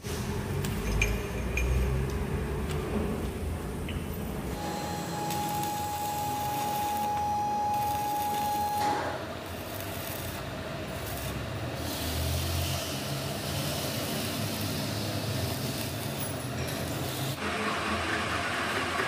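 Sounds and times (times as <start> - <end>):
arc welding crackling: 4.5 - 17.4
steady high tone: 4.6 - 9.3.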